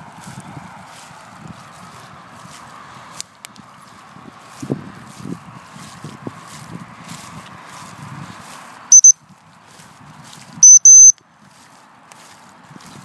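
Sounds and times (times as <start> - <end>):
dog whistle blasts: 10.6 - 11.2.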